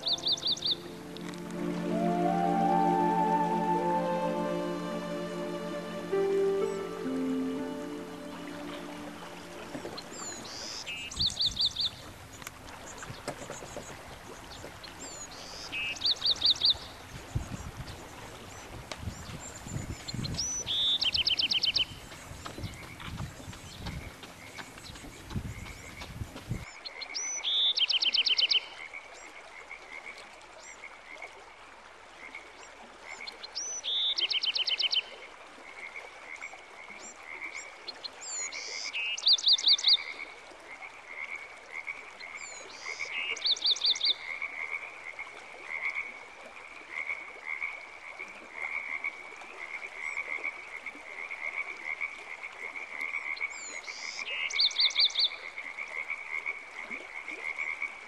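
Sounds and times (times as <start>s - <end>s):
frog chorus: 35.6s - 37.8s, 38.4s - 46.2s, 46.9s - 58.0s.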